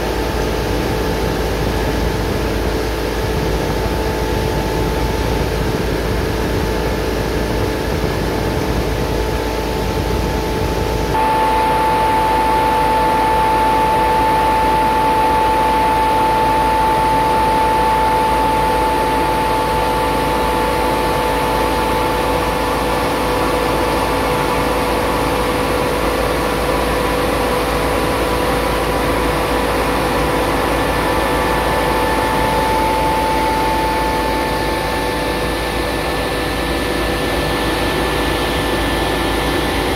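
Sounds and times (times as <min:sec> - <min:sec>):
fan rushing air: 0:00.0 - 0:39.9
high motor whine: 0:00.0 - 0:39.9.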